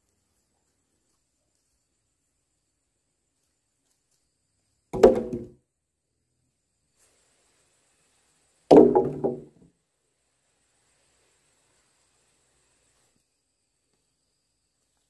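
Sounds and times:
logs dropping onto log pile: 5.0 - 5.6, 8.7 - 9.6.

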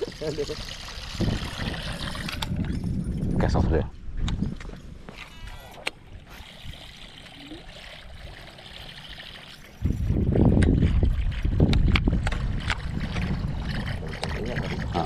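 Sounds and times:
water rushing against a boat: 6.0 - 15.0.

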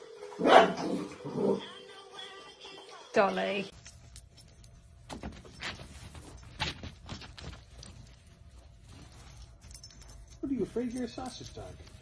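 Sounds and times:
dog rustling under rug: 4.9 - 12.0.

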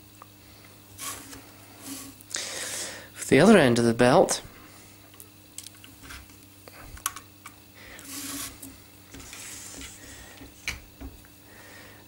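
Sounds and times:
hands rubbing drive belt: 8.0 - 10.7.

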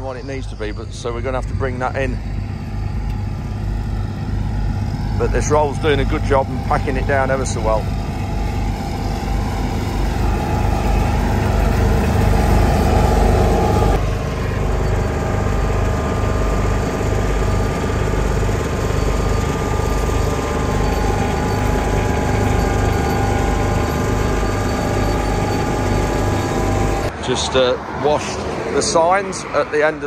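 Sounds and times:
tractor engine running: 0.0 - 27.1.

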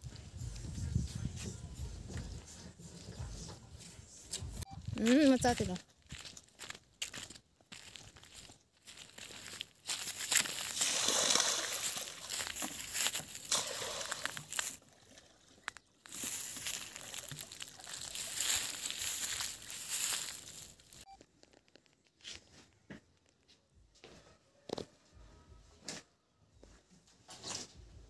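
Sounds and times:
water sloshing and splashing: 9.9 - 21.0.

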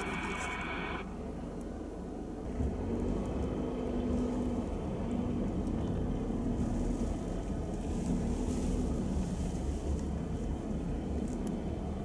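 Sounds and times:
light hiss: 0.0 - 1.1
low rumble of vehicle engines: 0.0 - 12.0
tyres on snowy road: 0.0 - 12.0.

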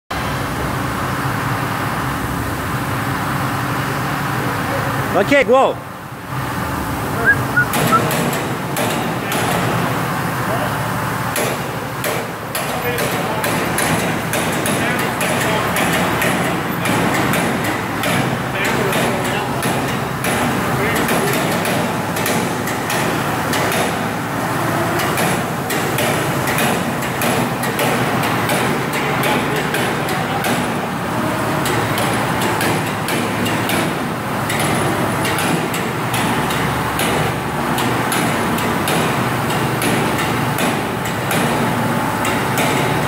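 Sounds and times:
loud machinery noise: 0.2 - 43.0
sharp clicks and knocks: 11.3 - 24.0, 31.6 - 43.0.

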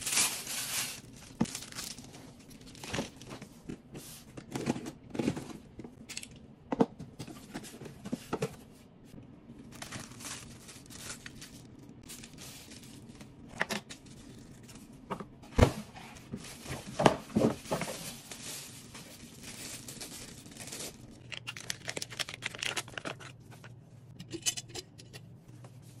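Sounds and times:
plastic wrap crinkling: 0.0 - 3.4, 9.6 - 15.0, 16.2 - 23.8.

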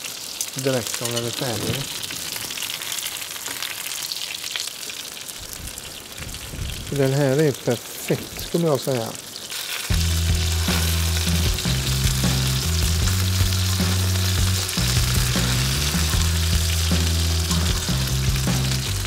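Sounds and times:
fish sizzling in hot oil: 0.0 - 19.0
music with deep bass line: 9.9 - 19.0.

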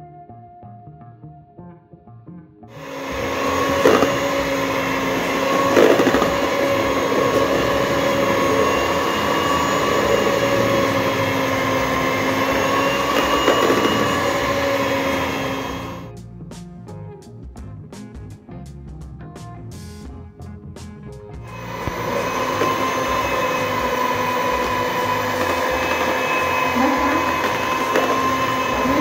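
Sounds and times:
electric hand mixer whipping batter: 2.8 - 16.1, 21.5 - 29.0
mixer beaters knocking: 2.8 - 16.1, 21.5 - 29.0.

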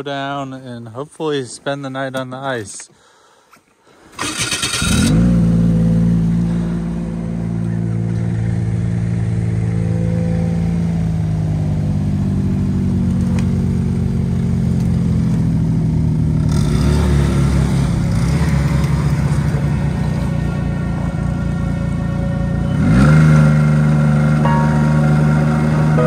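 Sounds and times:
snowmobile accelerating away: 4.3 - 11.3, 22.6 - 26.0
snowmobile engines idling: 5.4 - 16.5, 17.5 - 26.0.

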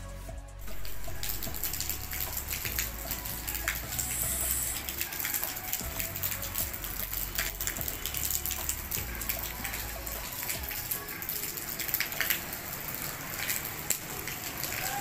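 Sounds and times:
rain drops tapping and dripping: 0.6 - 15.0.

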